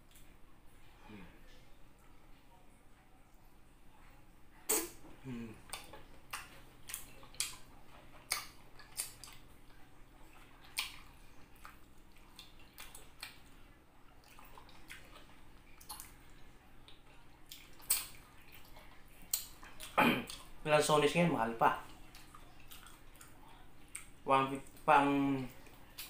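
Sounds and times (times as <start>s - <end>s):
faint steady hum: 0.0s - 26.0s
person chewing and smacking: 5.3s - 20.6s, 21.8s - 26.0s.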